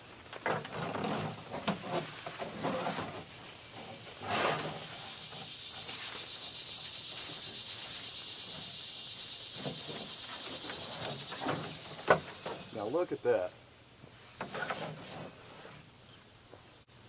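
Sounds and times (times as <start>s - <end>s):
high-pitched insect buzz: 4.6s - 12.9s.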